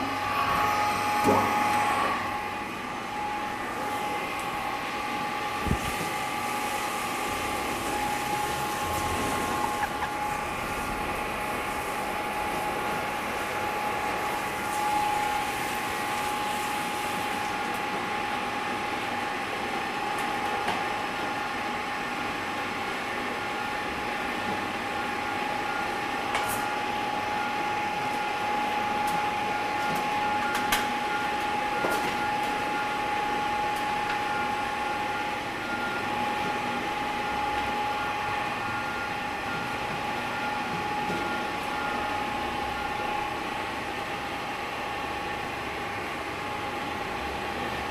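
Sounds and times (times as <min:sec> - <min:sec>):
paddle mixer whining: 0:00.0 - 0:18.2.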